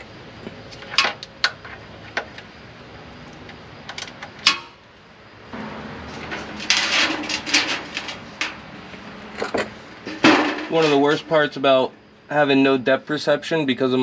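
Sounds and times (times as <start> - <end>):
metal pan scraping across floor: 6.1 - 8.6.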